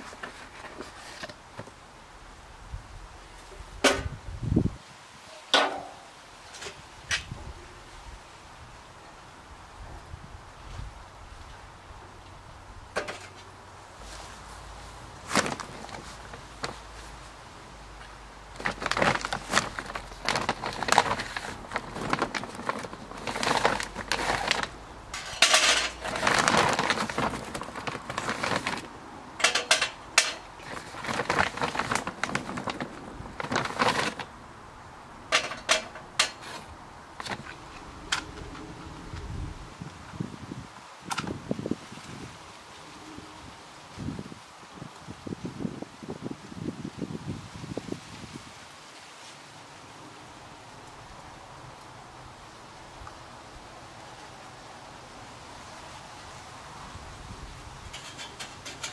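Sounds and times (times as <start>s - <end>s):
charcoal clattering into metal: 5.5s - 7.2s, 18.6s - 34.3s, 35.3s - 37.4s, 57.9s - 58.9s.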